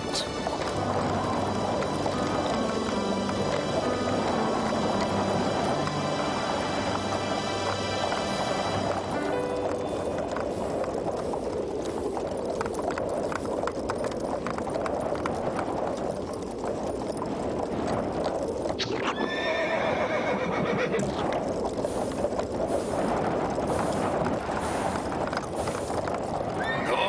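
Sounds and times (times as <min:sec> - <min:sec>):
horse hoof clops: 0:00.0 - 0:27.0
storm wind: 0:00.0 - 0:27.0
horse whinny: 0:18.8 - 0:21.3, 0:26.6 - 0:27.0.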